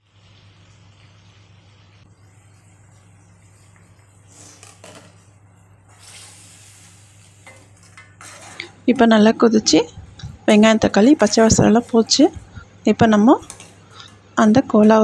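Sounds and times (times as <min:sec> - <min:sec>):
gravy bubbling in a pan: 0:00.0 - 0:08.8
steady low hum: 0:05.2 - 0:15.0.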